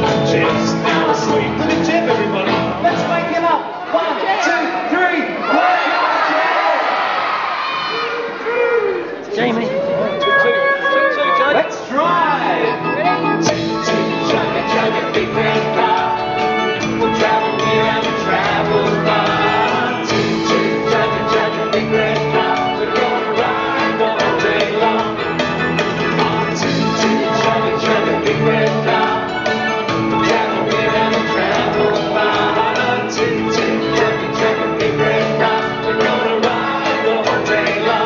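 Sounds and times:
man singing: 0:00.0 - 0:03.3, 0:12.0 - 0:38.0
live band playing pop song: 0:00.0 - 0:03.6, 0:09.4 - 0:38.0.

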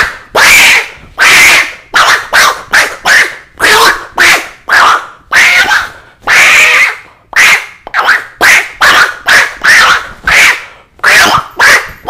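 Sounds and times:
man imitating monkey screeches: 0:00.0 - 0:12.0.

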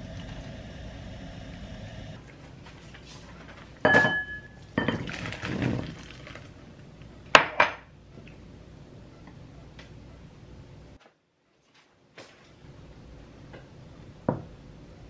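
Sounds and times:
dishes clinking: 0:03.8 - 0:06.4
noodle soup pouring into a bowl: 0:04.6 - 0:06.6.

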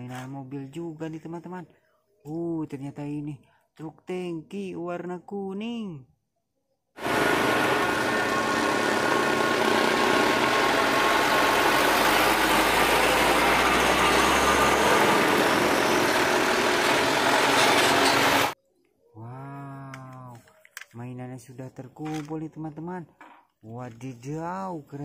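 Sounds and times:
road noise: 0:07.0 - 0:18.6
trucks driving past: 0:07.0 - 0:18.6.

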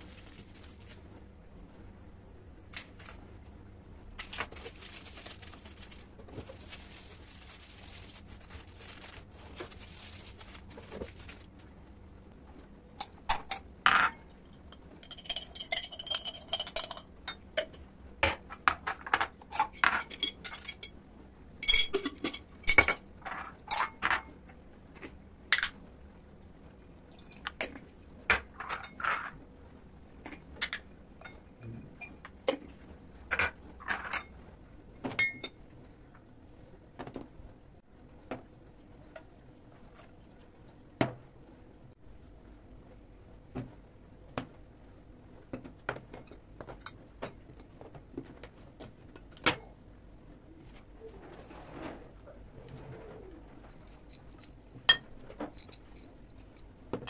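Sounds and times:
glass jars clinking: 0:15.0 - 0:17.7.

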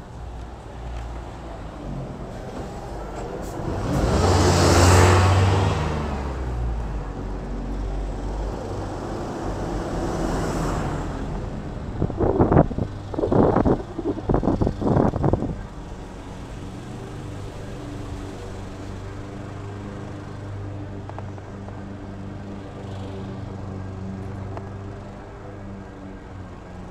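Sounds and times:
car passing by: 0:01.0 - 0:07.0, 0:08.5 - 0:12.5.

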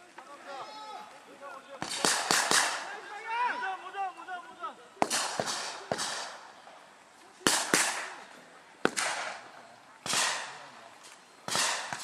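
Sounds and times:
rifle shots echoing: 0:01.8 - 0:03.0, 0:05.0 - 0:06.5, 0:07.4 - 0:10.8, 0:11.5 - 0:12.0.

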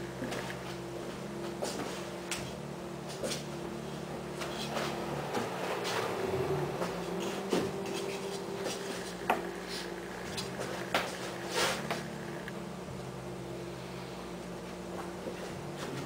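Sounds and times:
steady low hum: 0:00.0 - 0:16.0
brush strokes scratching: 0:03.1 - 0:12.4.

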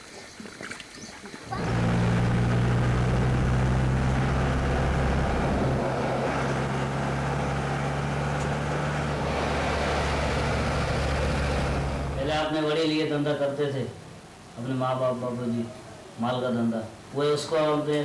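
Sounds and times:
vehicle engine drone: 0:01.5 - 0:12.8
road noise: 0:01.5 - 0:15.9.

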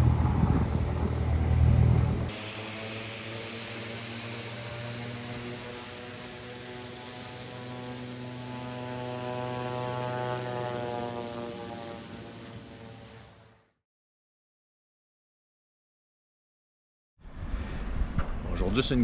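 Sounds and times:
high propeller whine: 0:00.0 - 0:13.8
turboprop plane engine drone: 0:00.0 - 0:13.8.

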